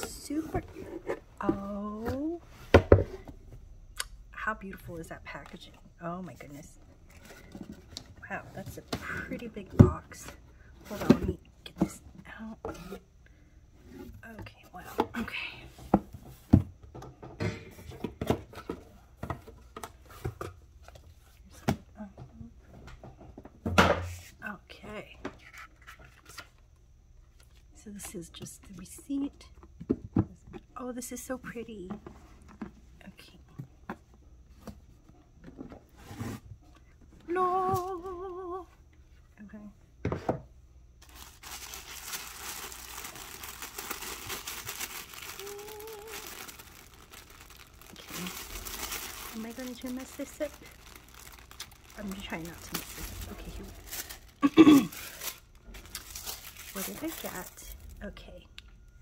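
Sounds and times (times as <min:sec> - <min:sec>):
tissue paper crinkling: 0:41.0 - 0:58.0.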